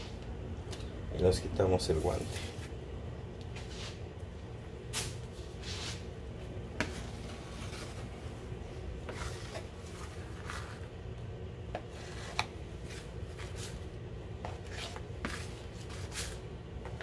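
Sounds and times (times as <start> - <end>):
steady low hum: 0.0 - 17.0
dough scraper scraping countertop: 6.8 - 8.1, 9.0 - 10.9, 11.7 - 13.8, 14.4 - 16.4.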